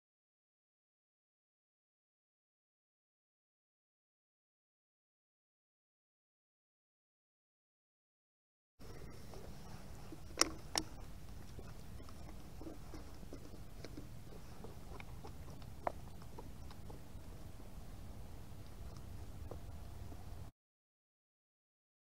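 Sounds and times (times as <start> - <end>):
steady low rumble: 8.8 - 20.5
stick stirring plaster in plastic: 8.9 - 17.1.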